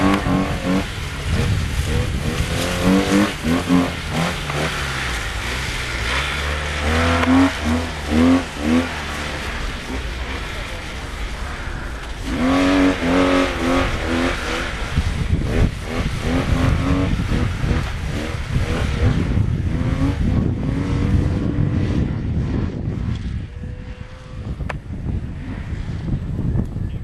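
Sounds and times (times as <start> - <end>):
snowmobile engine revving: 0.0 - 25.9
wind rumble on microphone: 0.0 - 27.0.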